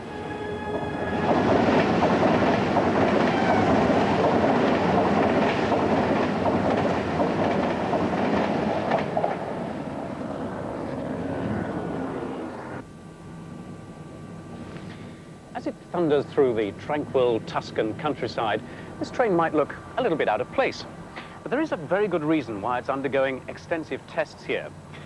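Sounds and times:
train rushing past: 0.0s - 12.8s
wheels clacking over rail joints: 0.7s - 9.8s.

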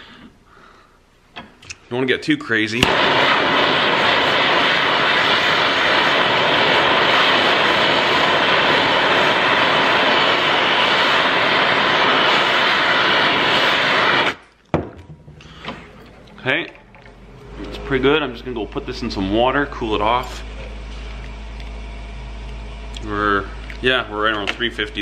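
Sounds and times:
gas torch hissing: 2.7s - 14.4s.

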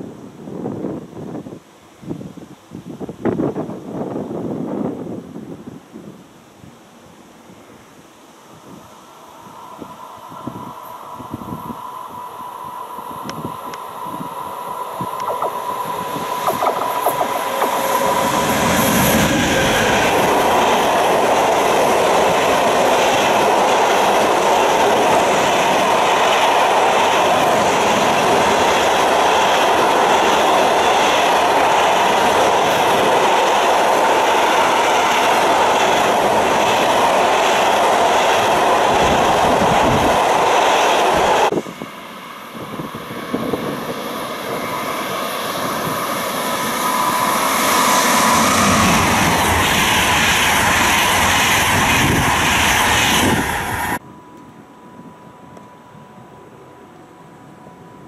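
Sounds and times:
freight train passing: 7.1s - 58.0s
train wheels on rails: 8.4s - 54.0s.

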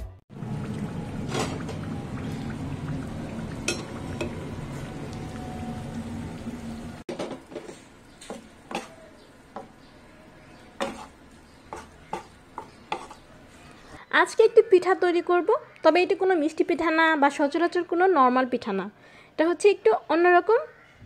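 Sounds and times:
deep-frying sizzle in hot oil: 0.4s - 14.0s
spatula scraping frying pan: 7.1s - 13.9s.

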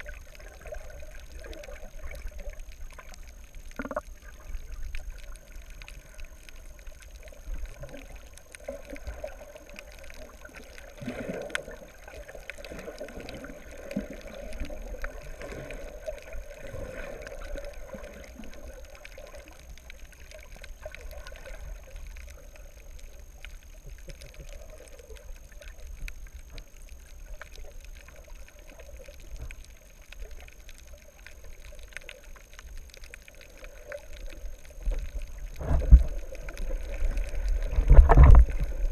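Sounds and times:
underwater washing water: 0.0s - 38.9s.

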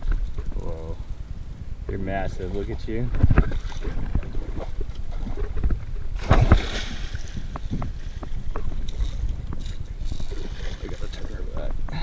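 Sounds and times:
fish thrashing and splashing: 3.2s - 11.4s.

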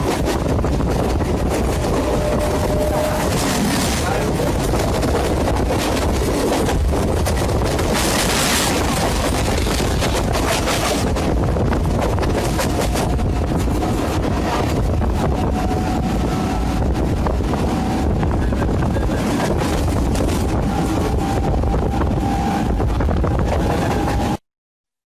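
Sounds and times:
train wheels rumbling on track: 0.0s - 24.4s
traction motor whine: 1.6s - 3.7s.

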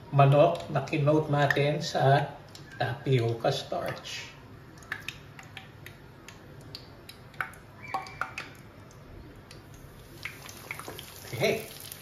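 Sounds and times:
hot oil ticking and popping: 0.3s - 12.0s.

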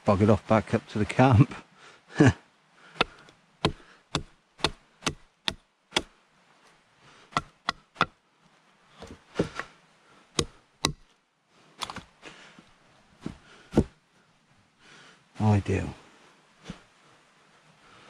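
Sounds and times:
blade chopping into wood: 3.0s - 6.1s, 10.4s - 11.0s.

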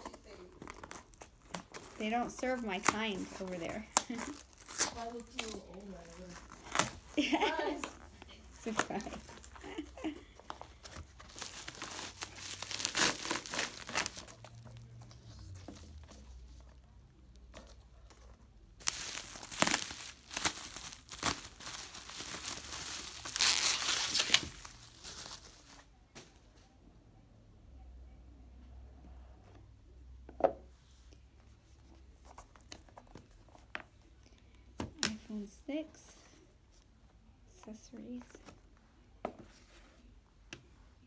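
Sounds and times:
bubble wrap crinkling: 0.0s - 16.7s, 18.7s - 26.0s.

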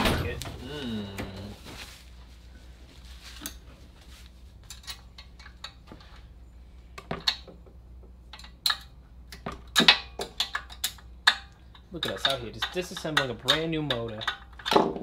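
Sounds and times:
metal parts and tools clinking: 4.6s - 6.2s, 8.3s - 15.0s.

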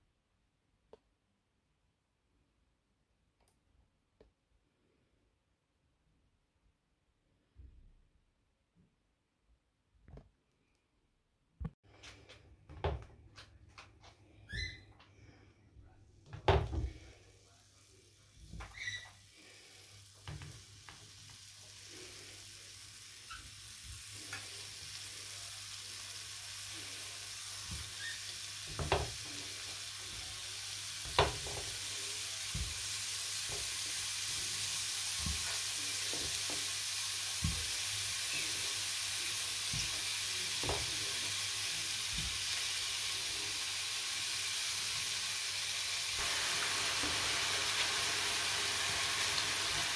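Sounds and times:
meat patties sizzling in a pan: 16.9s - 49.9s.

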